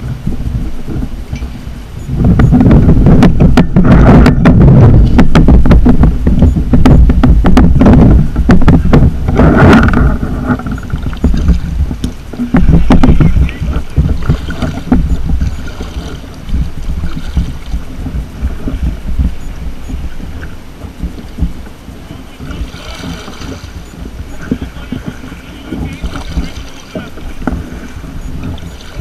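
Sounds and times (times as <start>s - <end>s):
paddle strokes splashing: 0.0s - 29.0s
wind rumble on microphone: 0.0s - 29.0s
paddle knocks: 2.2s - 29.0s.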